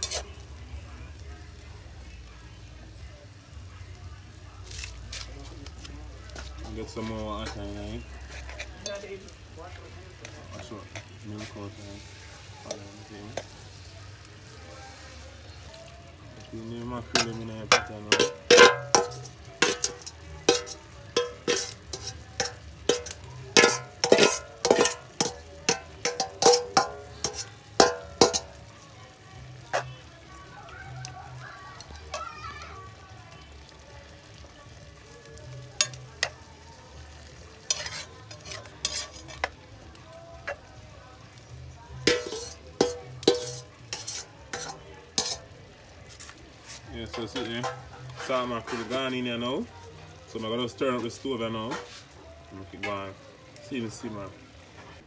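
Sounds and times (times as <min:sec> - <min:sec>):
spoon knocking and scraping a pot: 0:00.0 - 0:00.3, 0:17.1 - 0:28.6, 0:37.7 - 0:39.6, 0:42.0 - 0:45.4, 0:46.1 - 0:49.0.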